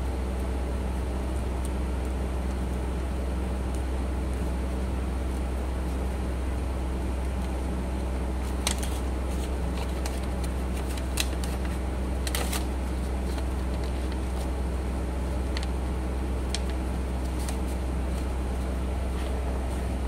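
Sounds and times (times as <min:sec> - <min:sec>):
steady low hum: 0:00.0 - 0:20.0
paper rustling and crackling: 0:08.4 - 0:15.8, 0:16.4 - 0:20.0.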